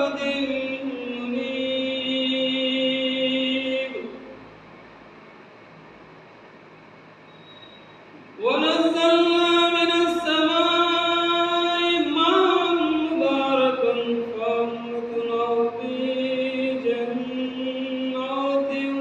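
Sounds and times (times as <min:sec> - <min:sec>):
man chanting melodically: 0:00.0 - 0:04.4, 0:08.4 - 0:19.0.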